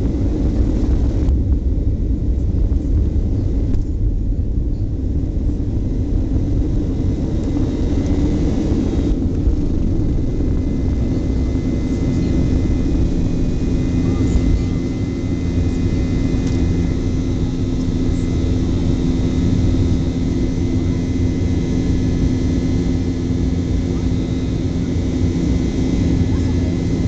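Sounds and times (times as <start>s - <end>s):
jet engines rumbling in cabin: 0.0s - 27.0s.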